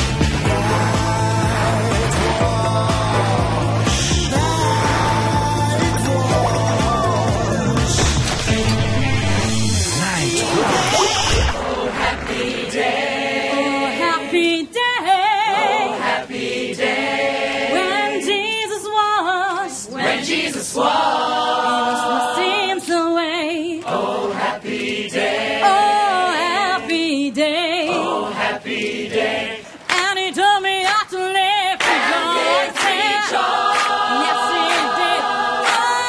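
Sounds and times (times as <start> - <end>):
choir singing a cappella: 0.0 - 8.0, 10.4 - 36.0.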